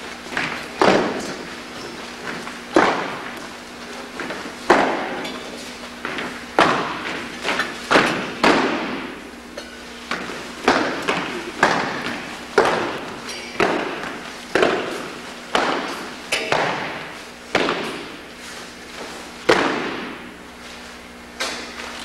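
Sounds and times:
boots marching on gym floor: 0.0s - 9.3s, 9.9s - 22.0s
heavy boot stamp: 0.3s - 3.5s, 4.1s - 5.2s, 6.0s - 9.2s, 10.1s - 18.2s.

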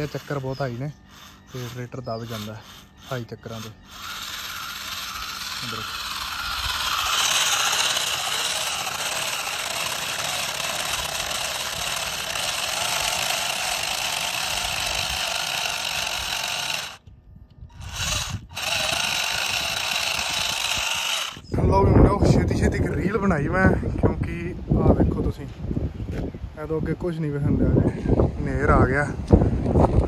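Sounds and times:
toy tractor motor whining: 0.0s - 21.8s.

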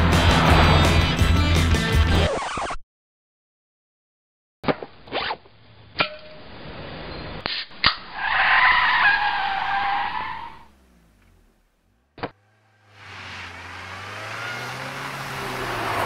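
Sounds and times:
car tyres squealing: 8.0s - 11.4s, 12.3s - 16.0s.

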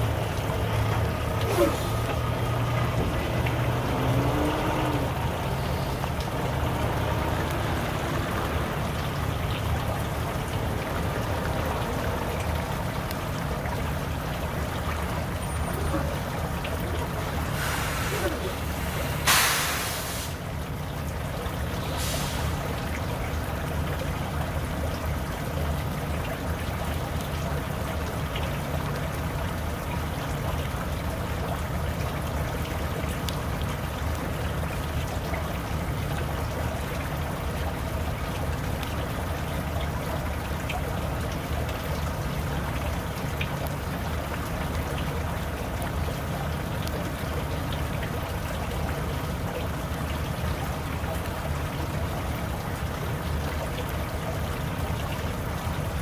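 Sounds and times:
even hiss: 17.5s - 20.4s.

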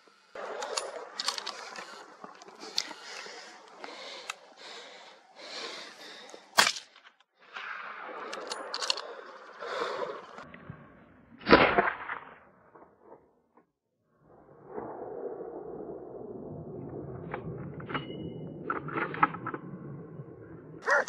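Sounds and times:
gunshots: 11.4s - 12.4s.

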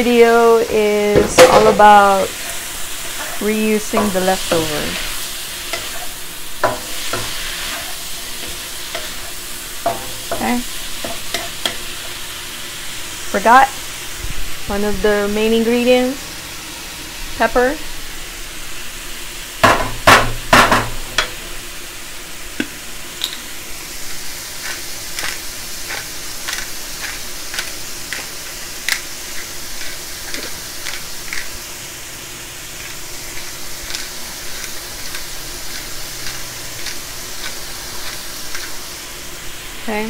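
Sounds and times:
food sizzling in a wok: 0.0s - 40.0s
loud knocks: 19.6s - 21.0s
pepper grinder clicking: 24.6s - 29.1s, 29.8s - 31.6s, 32.8s - 38.8s.

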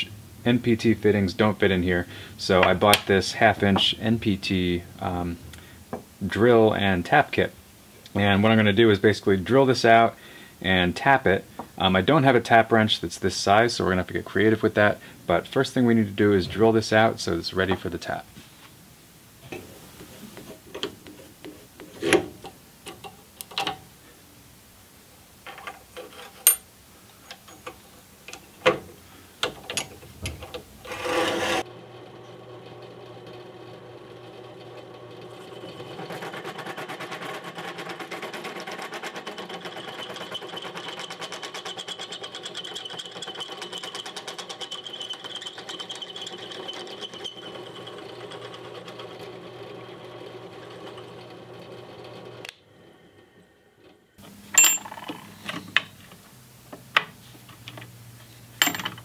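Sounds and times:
vise clicking and knocking: 19.4s - 23.8s, 27.3s - 31.6s, 34.7s - 49.3s, 58.6s - 59.0s
drill bit whining into metal: 30.9s - 36.8s, 39.0s - 52.5s
drill press motor running: 30.9s - 52.5s.

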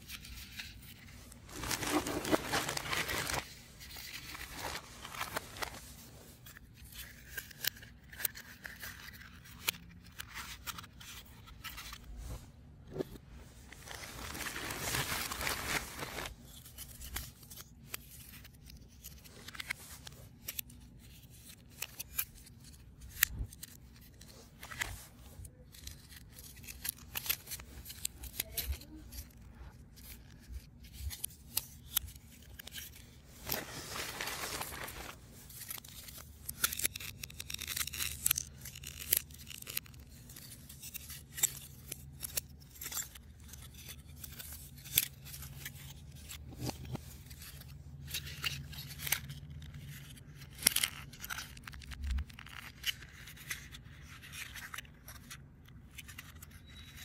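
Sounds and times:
rustling scrape: 0.1s - 7.2s, 10.8s - 17.2s, 32.6s - 35.8s.

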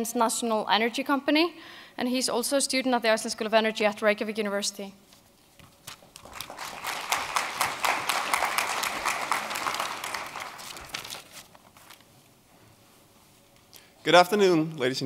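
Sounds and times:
audience applauding: 6.2s - 11.3s.

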